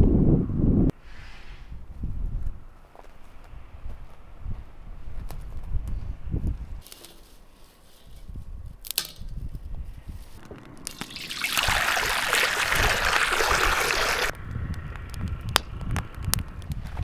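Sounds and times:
liquid pouring: 10.9s - 14.3s.

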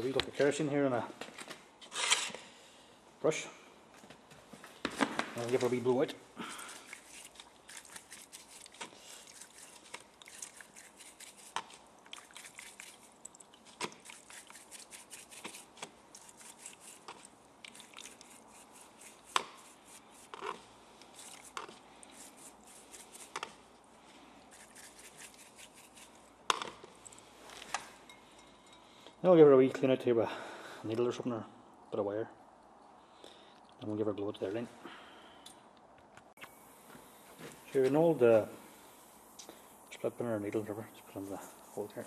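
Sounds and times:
brush scrubbing spark plug: 14.0s - 23.5s.

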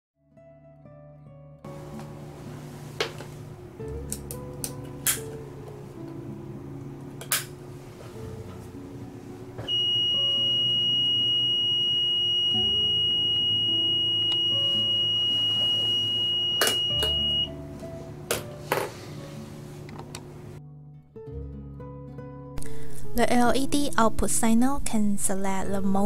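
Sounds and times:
continuous high-pitched beep: 9.7s - 17.5s.

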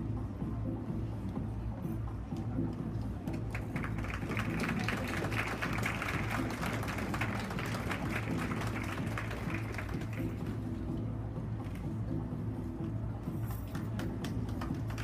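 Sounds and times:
background music with low bass: 0.0s - 15.0s
audience clapping: 3.3s - 10.6s, 13.7s - 15.0s.

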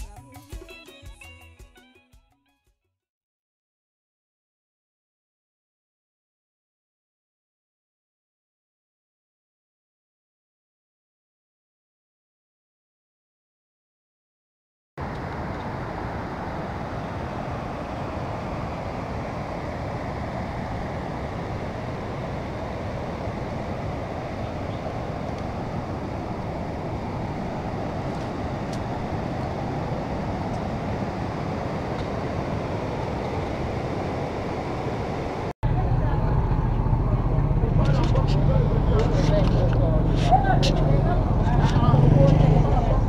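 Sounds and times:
water rushing over rapids: 15.0s - 35.5s.

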